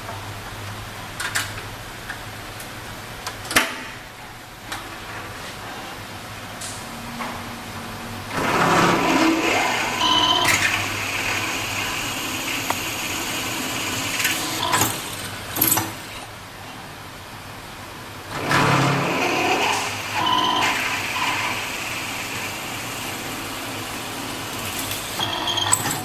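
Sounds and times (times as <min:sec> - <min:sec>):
drill press cutting metal: 0:18.4 - 0:26.0.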